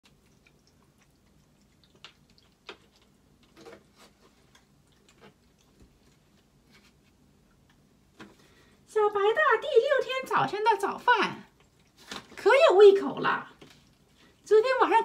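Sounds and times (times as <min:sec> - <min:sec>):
cat eating soft food: 0:00.0 - 0:08.8, 0:11.5 - 0:12.2, 0:13.6 - 0:14.5.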